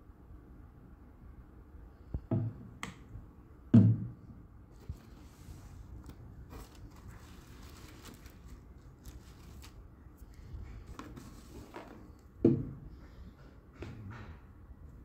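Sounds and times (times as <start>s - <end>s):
plastic bottle knocking on wood: 2.3s - 2.6s, 3.8s - 4.2s
rustling in packing filler: 4.8s - 12.3s.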